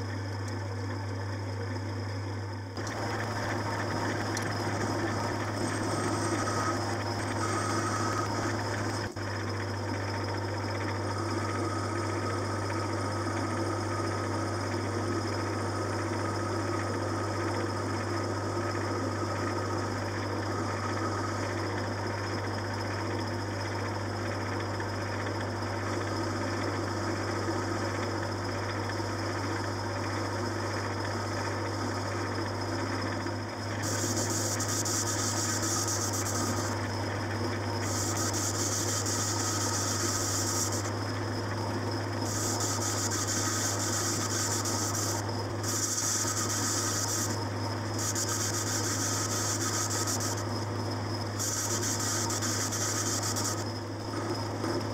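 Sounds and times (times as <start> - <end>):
metal lathe humming: 0.0 - 54.6
hissing cutting noise: 33.9 - 36.9, 37.8 - 41.0, 42.3 - 47.4, 48.0 - 50.5, 51.4 - 53.7.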